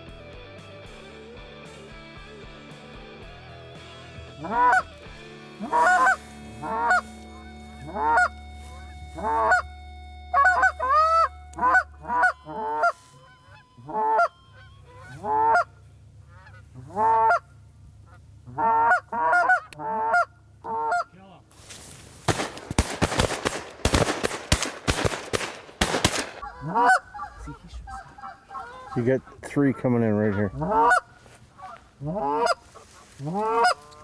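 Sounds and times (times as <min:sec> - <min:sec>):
goose honking: 0:04.3 - 0:21.1, 0:26.4 - 0:34.0.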